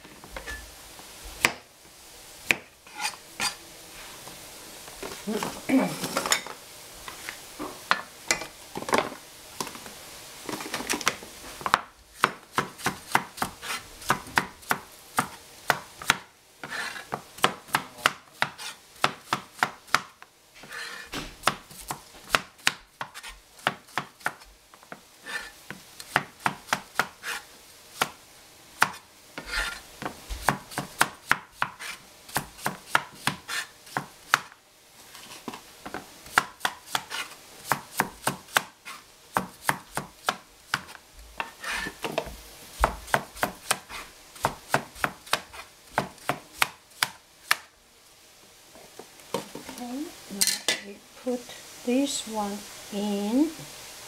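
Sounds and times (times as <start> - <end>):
knife chopping on plastic board: 11.7 - 20.1, 25.7 - 27.2, 39.4 - 47.7.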